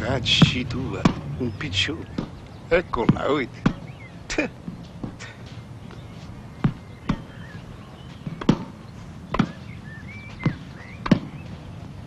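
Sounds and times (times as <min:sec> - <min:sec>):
tennis ball pocks: 0:02.1 - 0:04.0, 0:04.7 - 0:09.7, 0:10.3 - 0:11.6.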